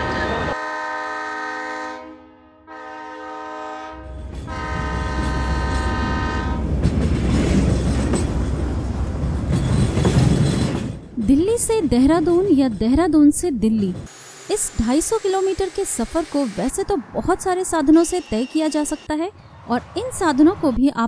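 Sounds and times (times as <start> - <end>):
train horn blasts: 0.0 - 6.7
low rumble of train running: 2.8 - 14.1.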